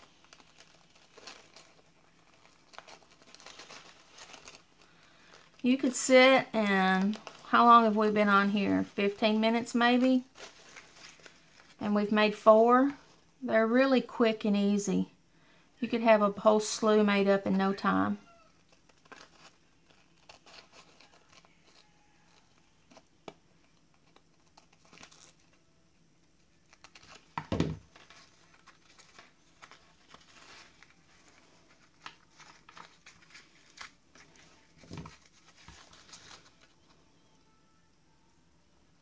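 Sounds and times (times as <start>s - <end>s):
paper napkin rustling: 27.9s - 37.0s.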